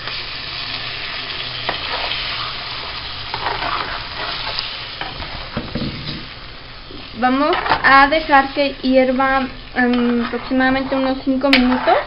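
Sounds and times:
salsa sizzling in a pot: 0.0 - 12.0
metal spoon stirring: 9.3 - 12.0.

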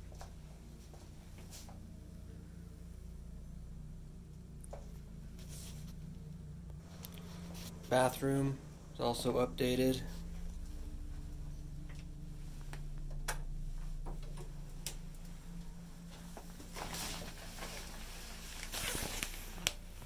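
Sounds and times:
steady low hum: 0.0 - 20.0
plastic shower curtain rustling: 16.2 - 20.0.

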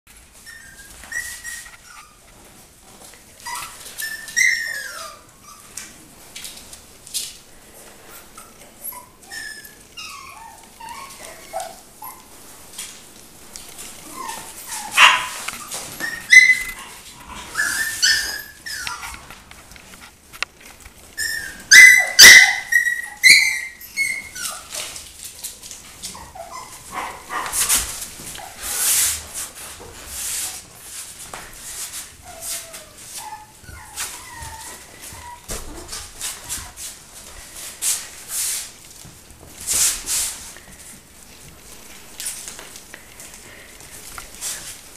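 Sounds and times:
puppies yipping and barking: 0.2 - 2.5, 3.1 - 6.6, 8.1 - 13.0, 13.8 - 19.5, 21.0 - 29.1, 32.0 - 37.6.

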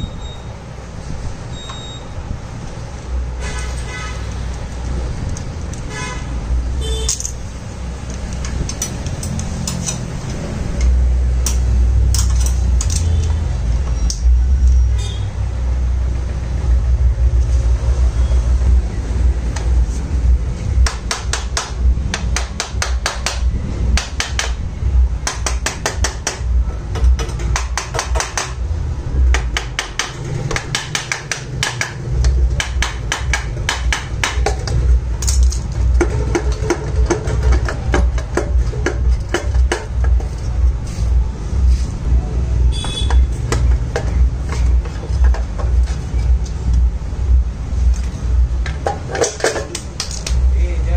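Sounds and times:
steady low hum: 0.0 - 50.9
ratchet wrench clicking: 7.0 - 13.3.

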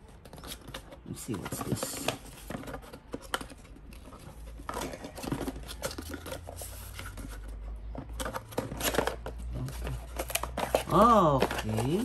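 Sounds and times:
cardboard box scraping and rustling: 1.3 - 12.0.

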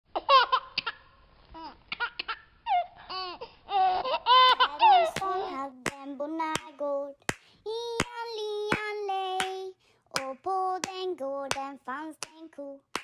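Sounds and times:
high voice singing: 4.6 - 13.0
sharp hand claps: 5.2 - 9.6, 10.2 - 13.0.

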